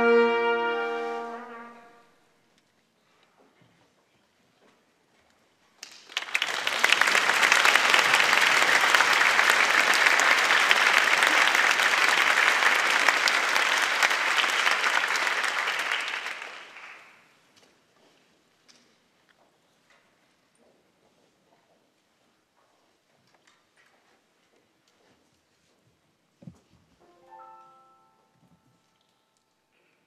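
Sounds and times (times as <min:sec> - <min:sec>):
audience applauding: 0:05.8 - 0:17.3.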